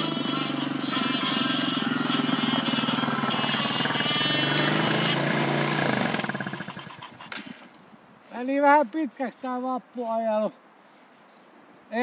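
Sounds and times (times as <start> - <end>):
quad bike engine running: 0.0 - 7.6.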